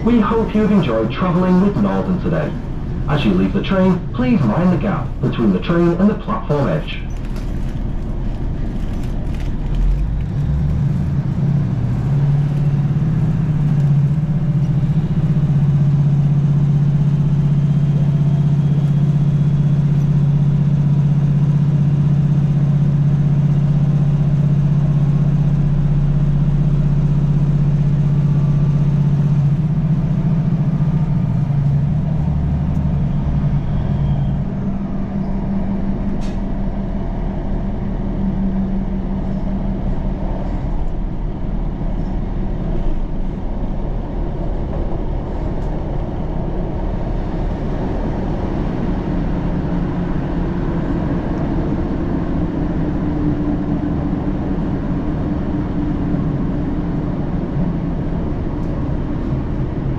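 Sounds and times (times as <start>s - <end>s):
train diesel engine droning: 0.0s - 59.9s
wheels running on rails: 7.0s - 16.0s.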